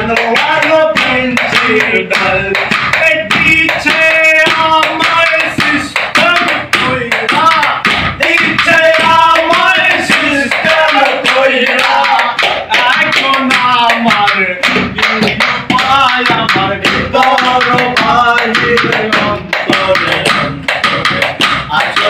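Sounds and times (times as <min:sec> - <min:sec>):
man singing: 0:00.0 - 0:22.0.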